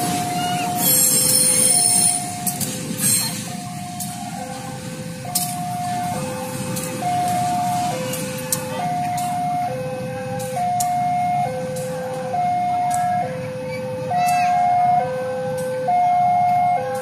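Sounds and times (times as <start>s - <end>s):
level crossing alarm two-tone signal: 0.0s - 2.6s, 3.4s - 14.0s.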